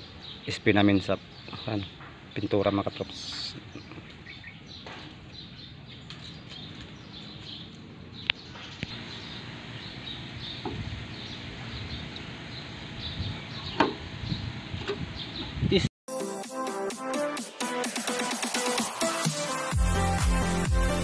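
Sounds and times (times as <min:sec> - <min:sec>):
outdoor background noise: 0:00.0 - 0:15.9.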